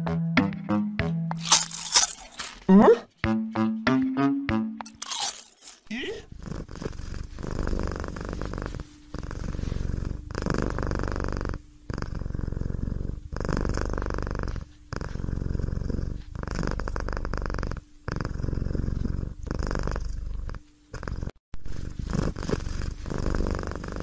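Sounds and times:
cat purring: 6.1s - 24.0s.

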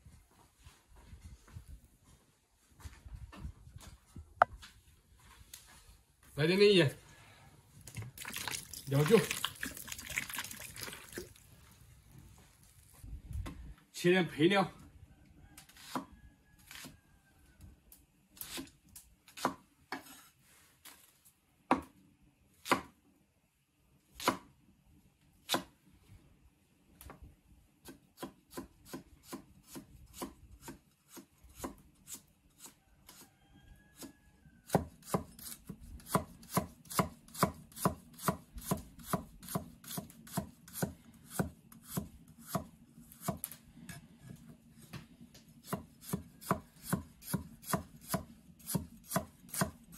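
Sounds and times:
knife chopping on wooden board: 34.7s - 43.5s, 45.6s - 49.8s.

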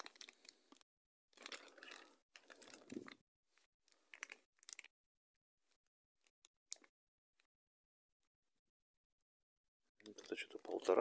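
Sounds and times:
packaging rustling and crinkling: 1.4s - 3.2s, 3.9s - 4.9s.

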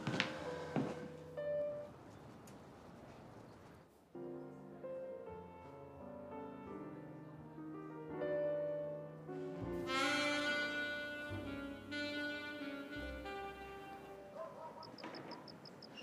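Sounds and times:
slow music of held notes: 4.1s - 14.4s.

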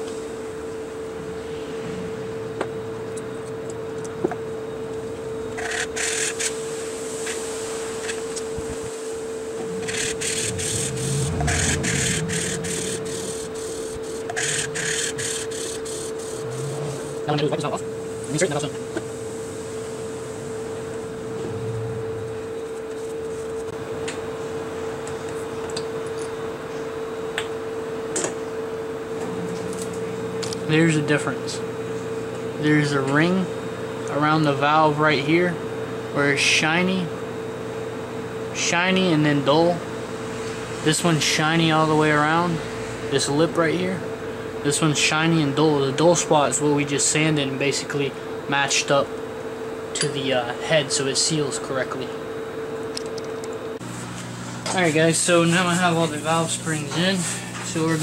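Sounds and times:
steady hum: 0.0s - 58.0s
gritty valve lapping scraping: 9.8s - 17.2s.

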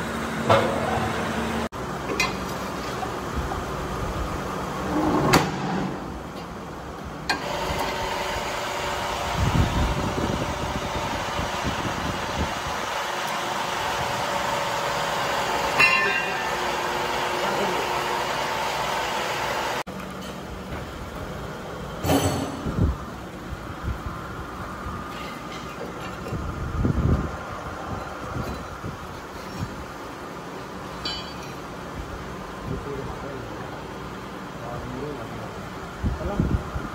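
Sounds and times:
hydraulic press hum and whine: 0.0s - 36.9s
sharp metallic knocks: 15.7s - 16.6s, 31.0s - 31.6s.

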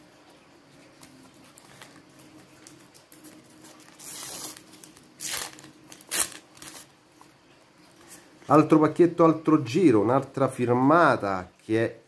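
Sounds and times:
paper packet tearing: 1.6s - 6.9s.

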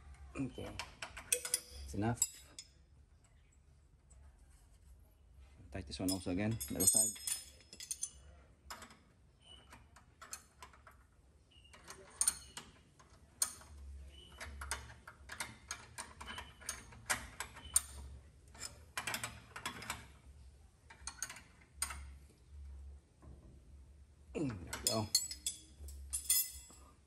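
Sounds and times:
metallic spanner clicks and clinks: 1.0s - 2.7s, 6.1s - 9.0s, 11.8s - 12.7s, 24.7s - 26.8s.

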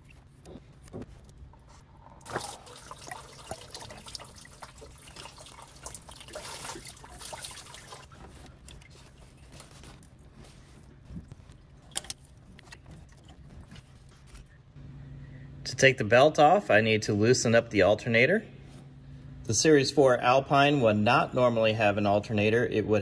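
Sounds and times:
coolant dripping and trickling: 2.2s - 10.2s.

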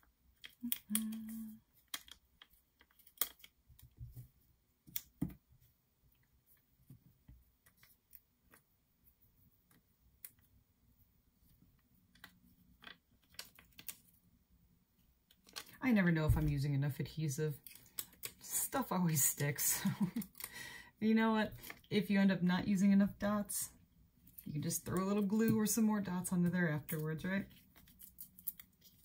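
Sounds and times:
small clicks and taps: 0.4s - 5.4s.

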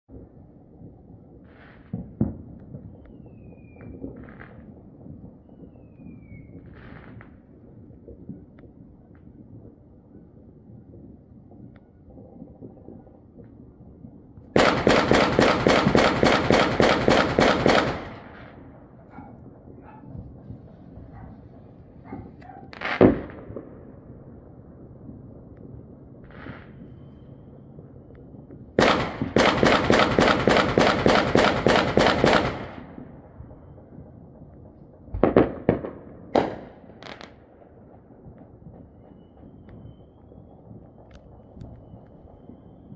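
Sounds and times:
fireworks bangs: 1.4s - 9.4s, 14.4s - 24.5s, 25.6s - 42.9s
rolling echo: 11.2s - 42.9s
rapid loud sharp bangs: 14.6s - 18.2s, 28.8s - 32.8s.

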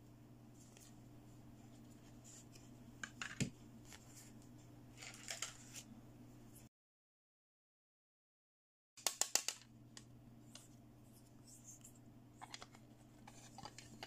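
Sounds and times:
low steady hum: 0.0s - 6.7s, 9.5s - 14.0s
plastic clicks and paper rustling: 5.0s - 5.8s, 11.8s - 14.0s.

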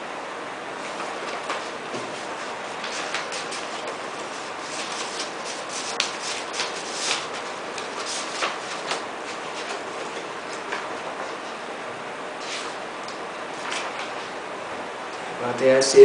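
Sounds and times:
paper rustling and crinkling: 0.8s - 11.6s, 12.4s - 12.8s, 13.5s - 14.4s.

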